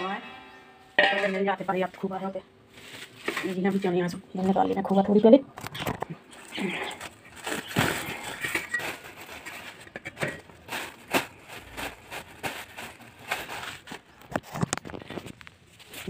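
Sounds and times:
wrapper rustling and crinkling: 2.7 - 3.9, 5.6 - 16.0.

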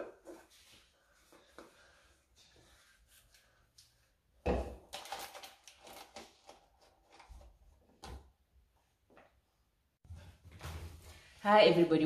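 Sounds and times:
objects handled on kitchen counter: 3.8 - 8.3.

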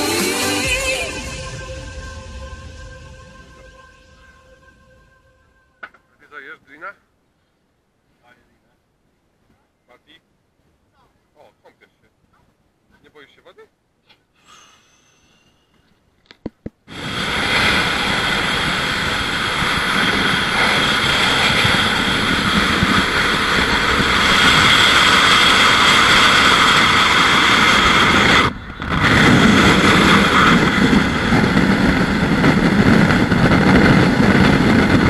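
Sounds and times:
wind rushing over microphone: 0.0 - 5.6, 16.9 - 35.0
car road noise at highway speed: 16.6 - 35.0.

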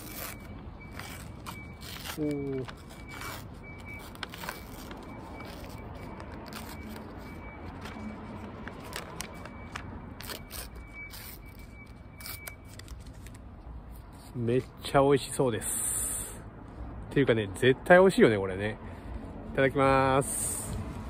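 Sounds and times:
paper wrapper crinkling and tearing: 0.0 - 13.5.

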